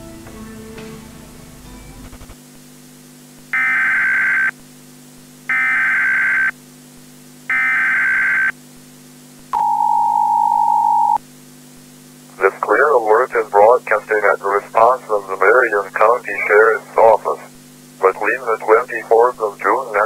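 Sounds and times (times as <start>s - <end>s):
buzzy digital data tones: 3.5s - 4.6s, 5.5s - 6.6s, 7.5s - 8.6s, 9.6s - 11.2s
low hum: 9.5s - 20.0s
two-tone attention signal: 9.6s - 11.2s.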